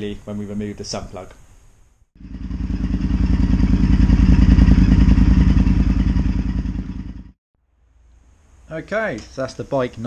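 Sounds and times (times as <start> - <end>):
motorcycle engine idling: 2.2 - 7.4.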